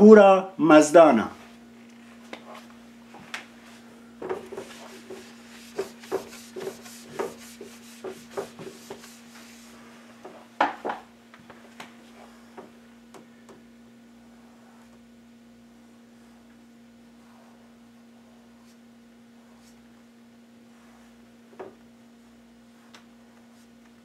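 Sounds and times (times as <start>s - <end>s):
low electrical hum: 0.0s - 24.0s
whiteboard being wiped: 3.6s - 10.4s, 17.1s - 18.8s, 19.4s - 19.9s, 20.6s - 21.3s, 22.3s - 23.8s.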